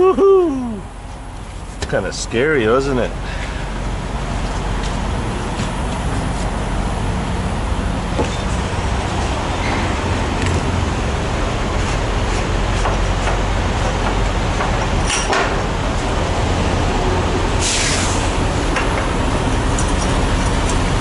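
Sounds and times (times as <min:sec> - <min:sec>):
road and cab noise: 0:00.0 - 0:21.0
truck diesel engine running: 0:00.6 - 0:21.0.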